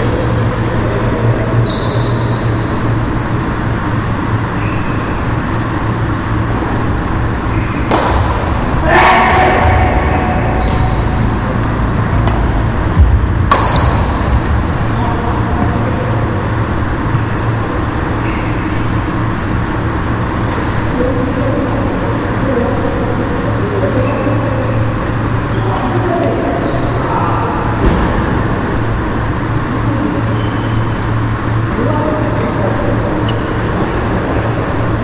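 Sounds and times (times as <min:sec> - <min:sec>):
low rumble of hall: 0:00.0 - 0:35.0
shoes squeaking on floor: 0:01.6 - 0:03.8, 0:04.5 - 0:05.2, 0:26.6 - 0:27.1, 0:31.8 - 0:33.6
racket hitting shuttlecock: 0:07.8 - 0:08.5
thump: 0:27.8 - 0:28.4.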